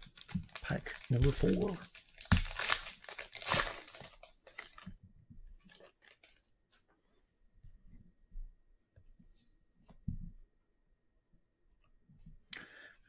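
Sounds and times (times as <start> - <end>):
cards rustling: 0.0 - 4.9
foil wrapper tearing and crinkling: 0.0 - 4.9, 5.7 - 6.5.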